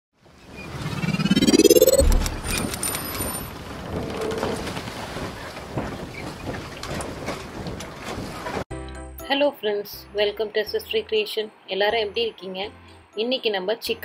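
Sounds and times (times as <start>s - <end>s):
rising tone: 0.6s - 3.0s
steady crackling noise: 0.7s - 8.3s.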